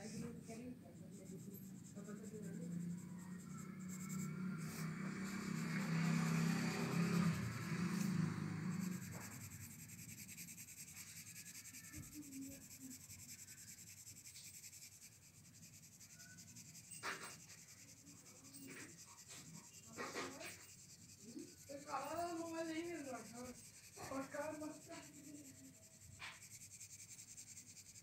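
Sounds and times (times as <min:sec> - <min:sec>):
pencil scratching on paper: 0:00.0 - 0:28.0.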